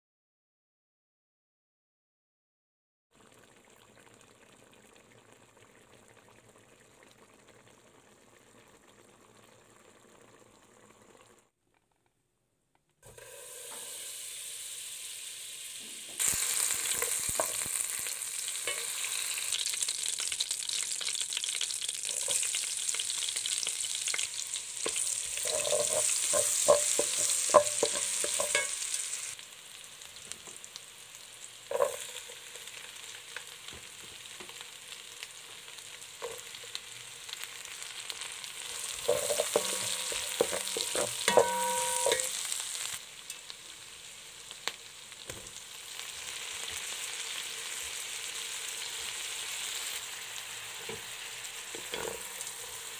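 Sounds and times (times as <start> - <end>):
butter sizzling in a pan: 13.1 - 52.9
spatula scraping a pan: 24.8 - 29.0, 38.8 - 42.5, 51.7 - 52.6.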